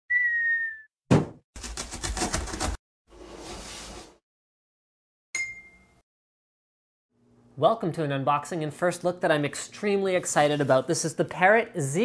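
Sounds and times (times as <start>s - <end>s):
short sliding whistle: 0.1s - 0.9s
bright ding: 5.4s - 6.0s.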